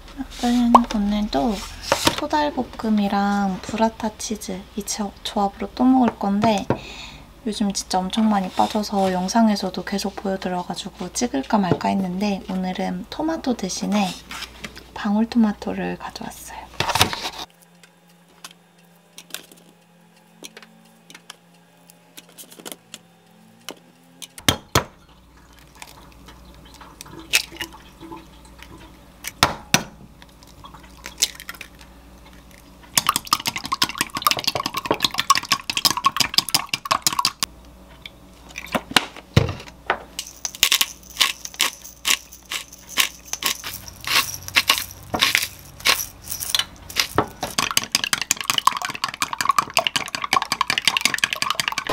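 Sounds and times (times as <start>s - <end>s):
eggs cracking: 30.2s - 37.5s, 40.2s - 51.9s
pepper grinder crackling: 30.2s - 37.5s, 40.2s - 51.9s
kitchen items clicking and knocking: 33.0s - 37.5s, 40.2s - 51.9s.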